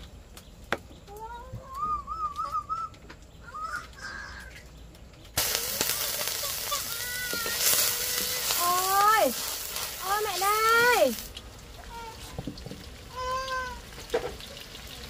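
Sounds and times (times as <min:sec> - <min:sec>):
food sizzling in hot pan: 0:05.4 - 0:15.0.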